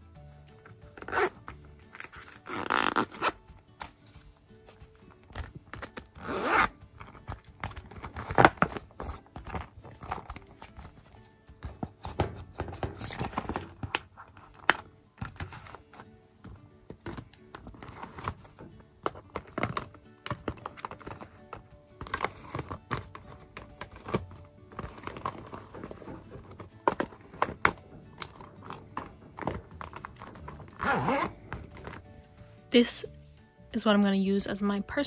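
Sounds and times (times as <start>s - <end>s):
quiet background music: 0.0s - 35.0s
zippers on toiletry bags: 0.6s - 4.0s, 4.8s - 16.0s, 16.9s - 32.1s
clicks and rustles of items: 7.0s - 32.1s.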